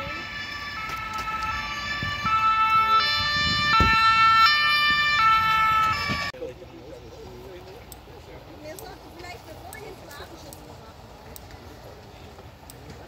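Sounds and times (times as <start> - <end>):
two-tone emergency siren: 0.0 - 6.4.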